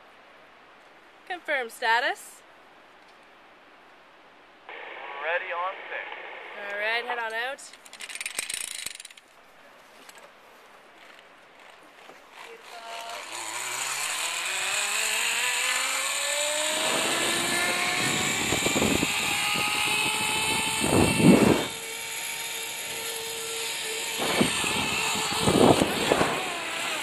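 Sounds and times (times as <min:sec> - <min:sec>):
zip line pulleys whirring: 0:07.8 - 0:09.2, 0:11.0 - 0:27.0
rushing bursts: 0:12.4 - 0:27.0.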